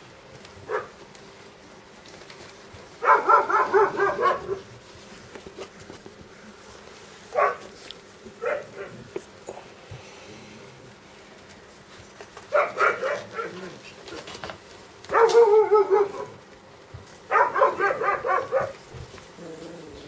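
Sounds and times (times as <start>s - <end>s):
puppies yipping: 3.0s - 4.6s.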